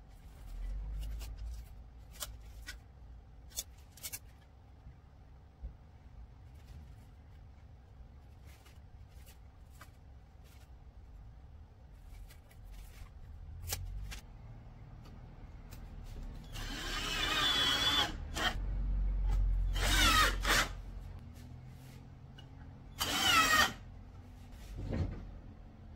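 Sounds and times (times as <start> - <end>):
cordless drill driving screws: 16.5 - 18.6, 19.7 - 20.8, 23.0 - 23.8.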